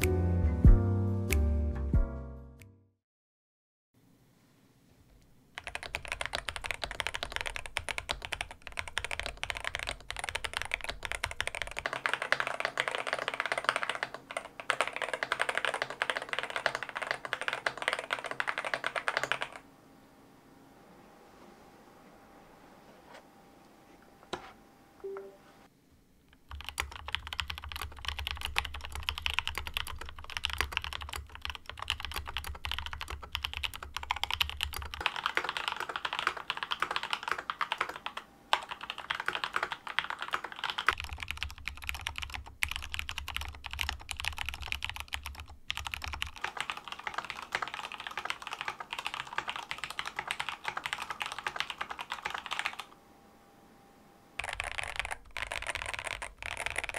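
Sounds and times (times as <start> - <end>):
mechanical keyboard typing: 5.6 - 19.6, 26.4 - 52.9, 54.4 - 56.9.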